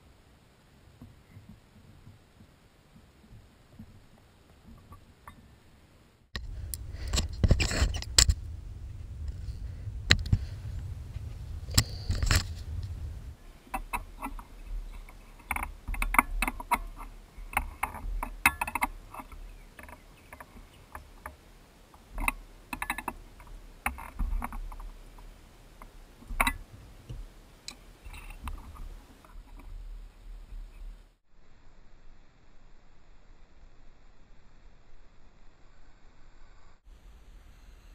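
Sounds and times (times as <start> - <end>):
low rumble: 6.4 - 15.2
tools clicking and scraping metal: 13.7 - 21.3.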